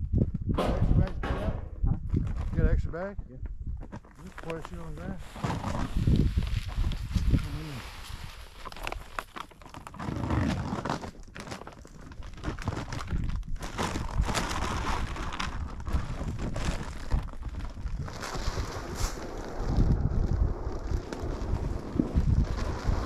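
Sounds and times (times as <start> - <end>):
plastic bag crinkling: 6.0 - 18.7.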